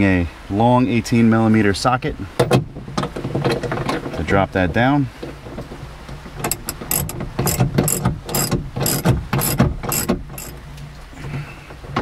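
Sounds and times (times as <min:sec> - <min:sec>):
ratchet wrench clicking: 0:06.5 - 0:10.5.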